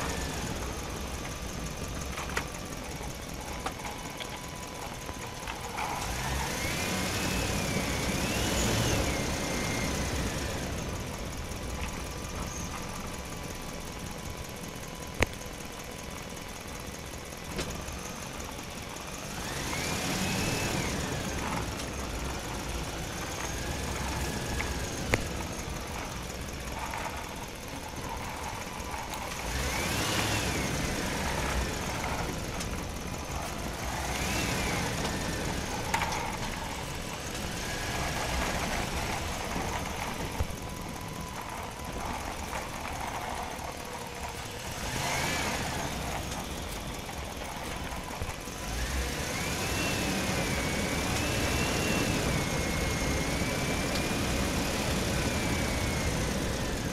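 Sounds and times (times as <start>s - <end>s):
vehicle engine revving: 0.0s - 15.2s, 16.4s - 56.9s.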